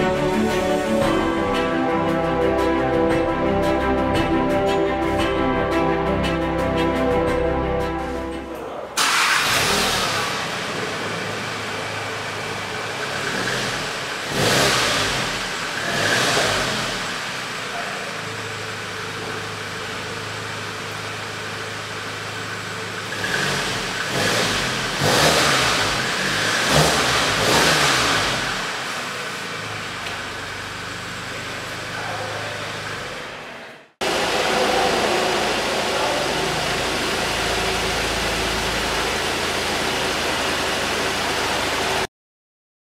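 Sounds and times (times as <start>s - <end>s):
car engine idling and revving: 0.0s - 42.1s
steady noise: 33.4s - 42.1s.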